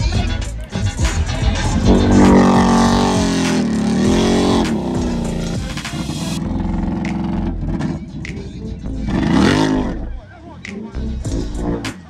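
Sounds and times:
atv engine revving: 0.0 - 10.3.

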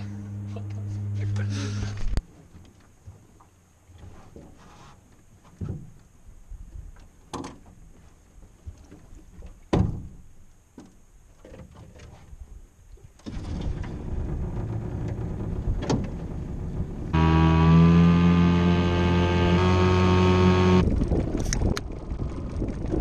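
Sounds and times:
outboard motor running: 0.0 - 2.2, 13.9 - 23.0
knocks and clunks of outboard motor: 13.2 - 23.0.

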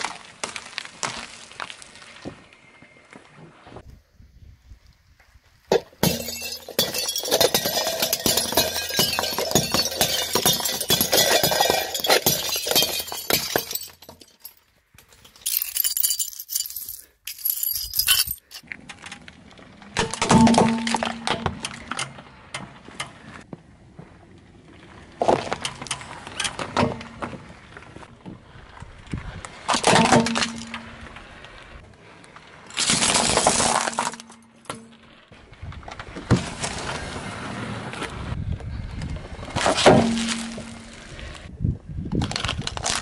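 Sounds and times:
plastic plates cracking under tyre: 42.1 - 43.0.

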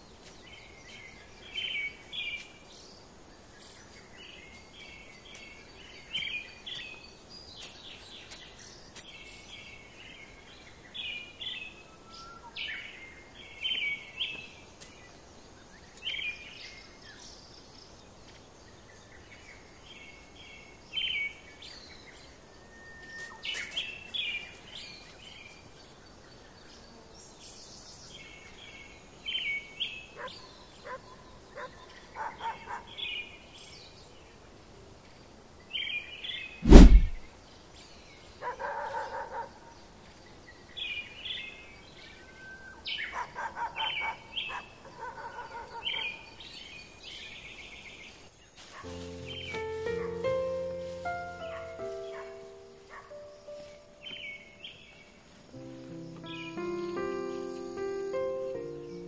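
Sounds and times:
outdoor background noise: 0.0 - 59.0
bird chirping: 48.8 - 59.0.

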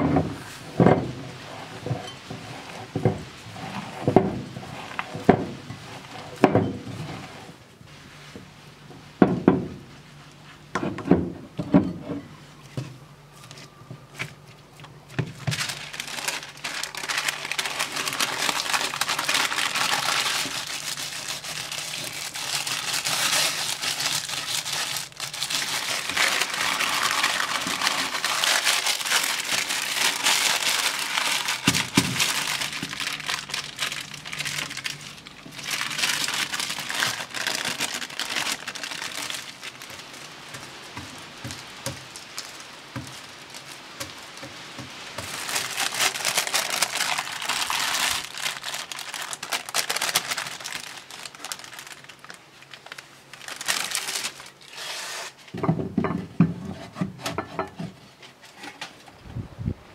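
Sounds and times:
baking paper crinkling: 13.4 - 55.5.

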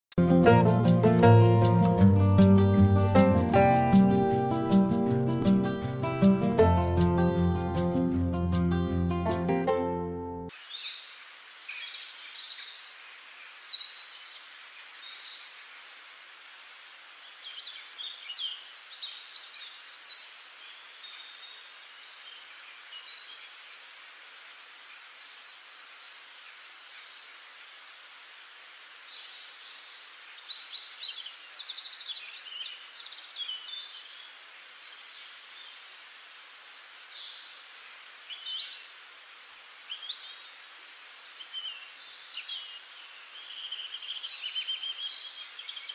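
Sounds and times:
steady hiss: 10.5 - 45.9.

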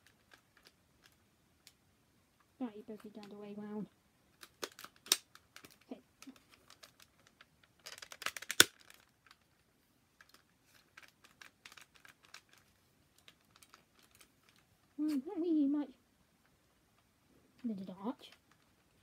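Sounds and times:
toy blaster clicks and rattles: 4.4 - 9.4, 10.2 - 14.6.

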